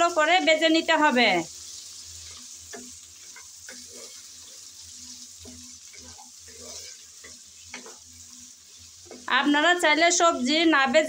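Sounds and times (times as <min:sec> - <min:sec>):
vegetables sizzling in oil: 0:00.0 - 0:11.0
spatula scraping and knocking pan: 0:02.2 - 0:09.4.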